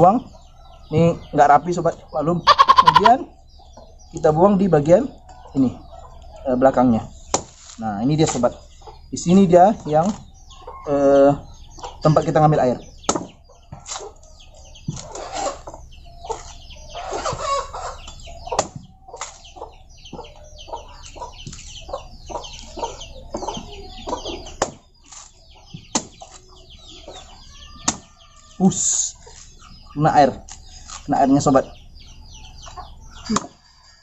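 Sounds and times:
chickens clucking: 0:00.0 - 0:34.0
knife chopping coconut husk: 0:07.3 - 0:08.4, 0:13.1 - 0:14.0, 0:24.6 - 0:25.3, 0:25.9 - 0:26.4.

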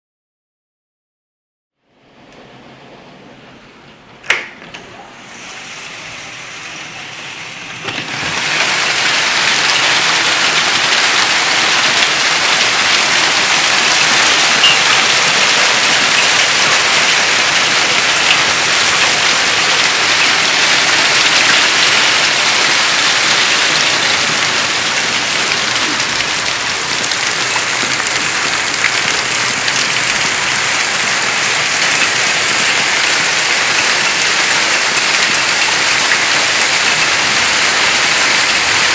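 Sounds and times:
heavy rain and hail: 0:05.3 - 0:38.9.

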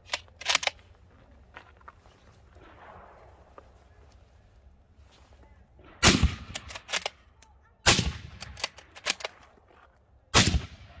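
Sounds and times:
rifle bolt metallic clicks: 0:00.0 - 0:00.8, 0:06.5 - 0:07.6, 0:08.4 - 0:09.6
rifle shots with echo: 0:05.8 - 0:07.2, 0:07.8 - 0:09.3, 0:10.3 - 0:11.0.

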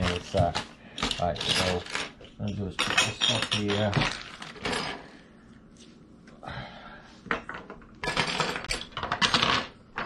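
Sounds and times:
metal hardware clinking on wood: 0:00.0 - 0:05.0.

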